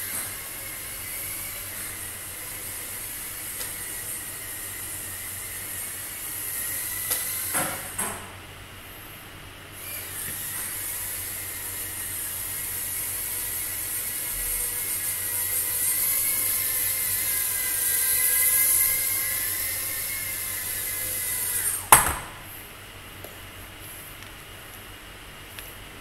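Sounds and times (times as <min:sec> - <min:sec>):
drone motors whining: 0:00.0 - 0:08.0, 0:09.8 - 0:22.0.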